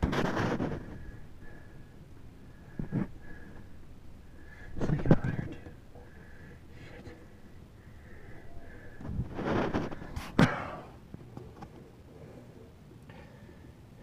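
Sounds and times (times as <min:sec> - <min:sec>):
rustling movement: 0:00.0 - 0:10.4.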